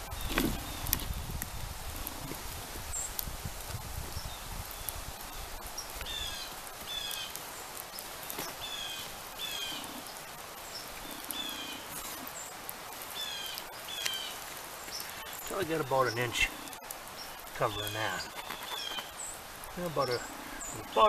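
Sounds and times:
birds chirping: 0:00.0 - 0:01.3, 0:04.1 - 0:21.0
stick scraping wet sand: 0:18.0 - 0:19.1.

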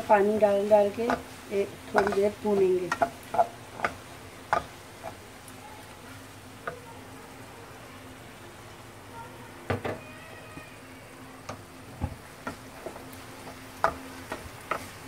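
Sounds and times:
meat sizzling in a pan: 0:00.0 - 0:15.0
wooden spatula knocking on pan: 0:00.9 - 0:01.3, 0:01.9 - 0:05.2, 0:11.5 - 0:15.0.

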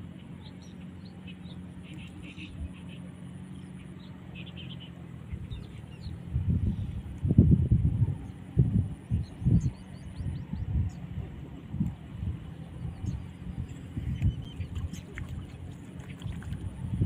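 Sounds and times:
small birds chirping: 0:00.0 - 0:07.3, 0:08.0 - 0:11.2, 0:11.8 - 0:17.0
steady low hum: 0:00.0 - 0:17.0
loud low rumbling: 0:05.2 - 0:17.0.

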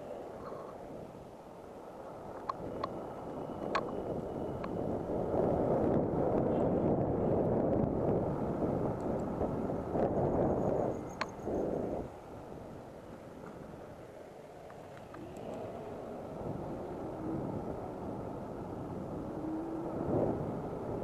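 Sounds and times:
wind rushing over microphone: 0:00.0 - 0:21.0
sharp ticks: 0:11.0 - 0:11.6.

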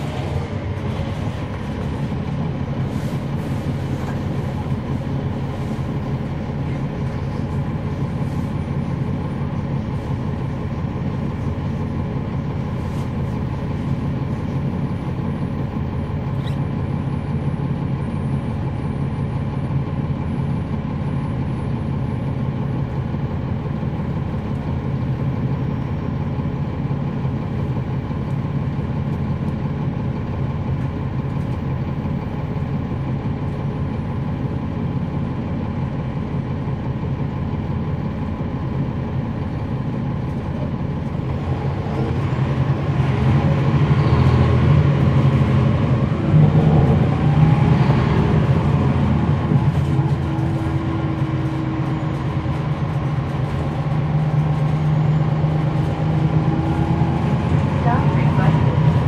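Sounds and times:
bus diesel engine: 0:00.0 - 0:59.0.

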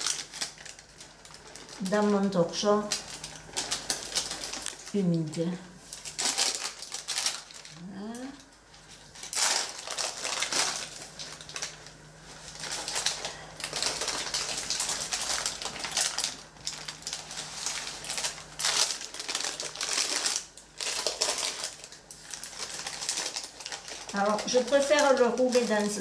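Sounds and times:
parchment paper crinkling: 0:00.0 - 0:26.0.

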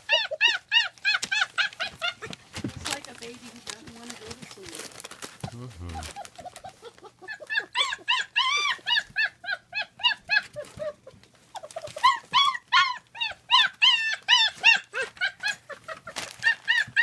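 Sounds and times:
puppies yelping and whining: 0:00.0 - 0:03.0, 0:04.8 - 0:17.0.

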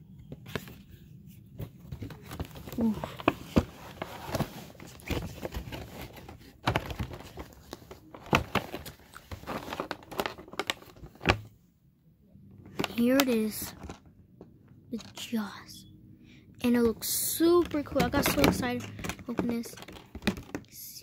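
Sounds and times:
plastic packaging crinkling: 0:02.1 - 0:11.5.

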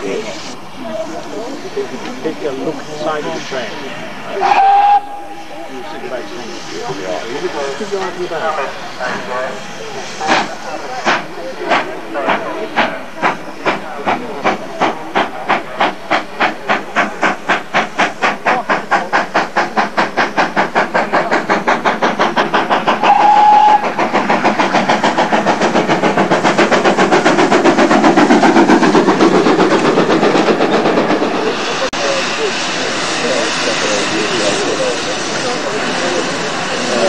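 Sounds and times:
steam locomotive exhaust chuffs: 0:01.5 - 0:37.0
steam whistle blast: 0:04.4 - 0:05.5, 0:23.0 - 0:23.9.

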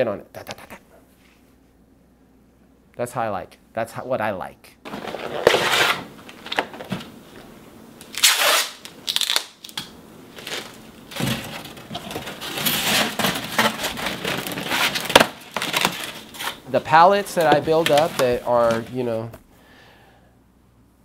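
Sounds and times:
paper and cardboard rustling: 0:04.9 - 0:07.1, 0:10.3 - 0:19.3
paper crinkles: 0:08.1 - 0:19.3.

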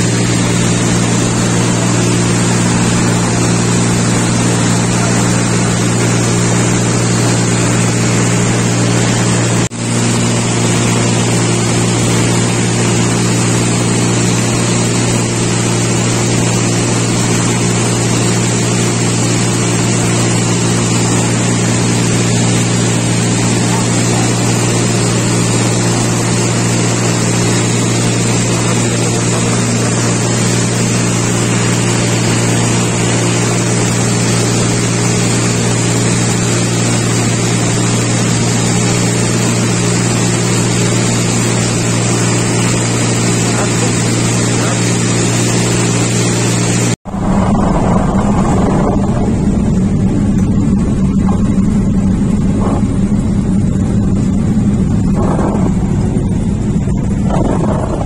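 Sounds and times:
air rushing: 0:00.0 - 0:13.4, 0:46.2 - 0:58.0
propeller aircraft engine hum: 0:00.0 - 0:58.0.

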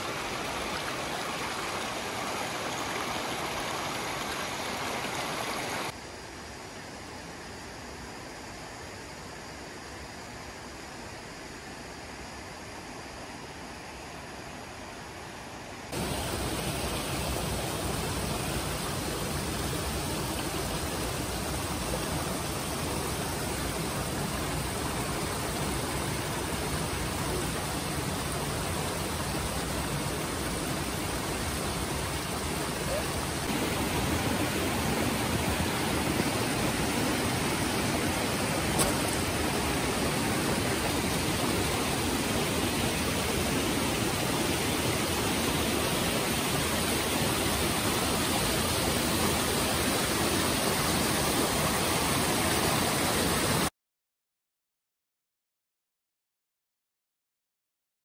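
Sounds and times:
stream rushing among boulders: 0:00.0 - 0:06.0, 0:15.9 - 0:53.7.

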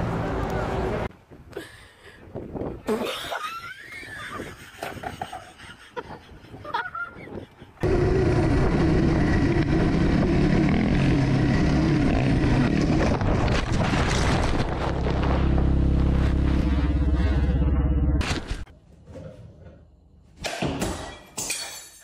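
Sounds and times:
dirt bike engine: 0:07.8 - 0:18.7
knocks and thuds of crash: 0:13.2 - 0:15.7.

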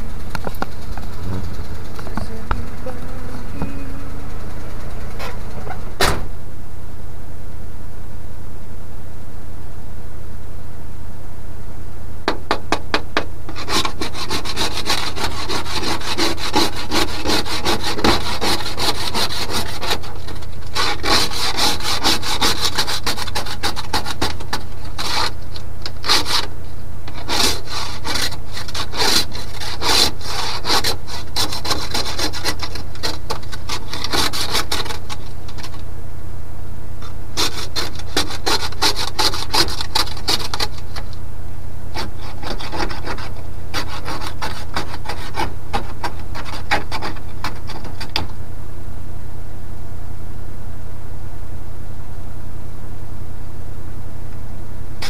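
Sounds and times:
truck engine running: 0:00.0 - 0:06.4
ice scraper scraping window: 0:13.5 - 0:26.5, 0:27.1 - 0:35.8, 0:37.4 - 0:41.1, 0:41.9 - 0:48.3.

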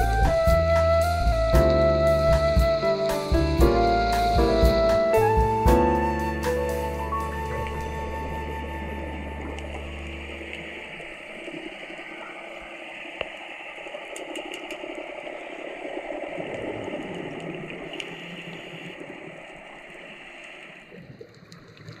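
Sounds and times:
underwater rushing bubbling water: 0:06.8 - 0:22.0
faint clicks: 0:13.2 - 0:15.2.

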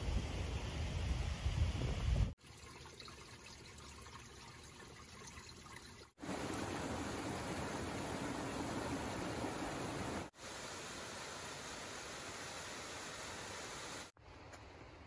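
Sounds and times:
stream rushing over rocks: 0:06.2 - 0:14.1.

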